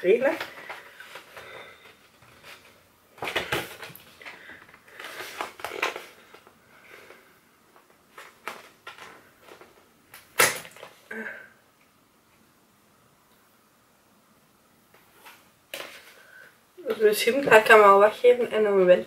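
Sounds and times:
paper and card rustling: 2.3 - 6.5.

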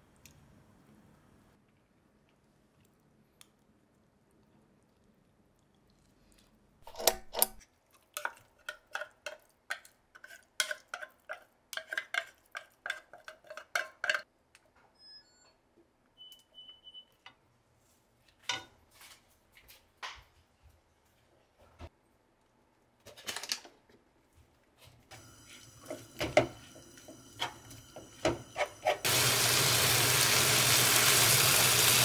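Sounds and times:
utensils clinking against cookware: 8.2 - 14.3.

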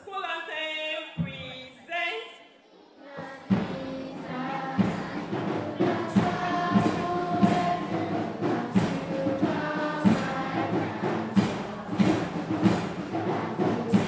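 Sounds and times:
girl singing into microphone: 3.0 - 12.2
percussion hits: 3.2 - 14.0.

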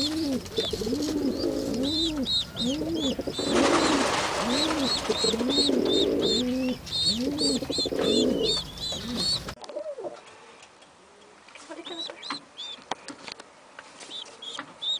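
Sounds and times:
high-pitched peeps: 0.0 - 9.6
pigeon cooing: 0.0 - 10.2.

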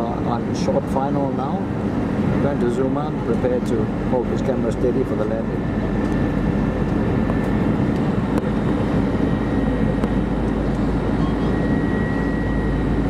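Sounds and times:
airliner cabin engine noise: 0.0 - 13.0
faint high whine: 0.0 - 13.0.

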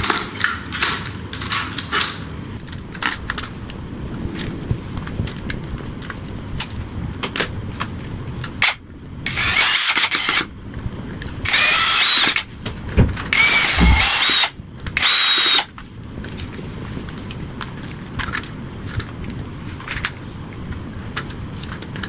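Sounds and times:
cordless drill whining: 8.6 - 10.5, 11.4 - 12.5, 13.3 - 15.7.

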